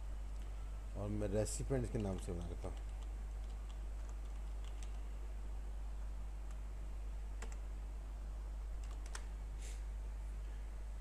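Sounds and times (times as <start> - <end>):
steady low hum: 0.0 - 11.0
keyboard keystrokes: 2.0 - 5.0, 8.8 - 9.3.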